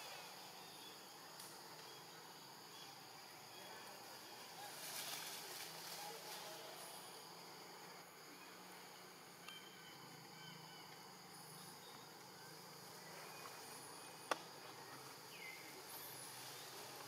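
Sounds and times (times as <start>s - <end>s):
high insect drone: 0.0s - 17.0s
bird chirps: 9.4s - 10.9s.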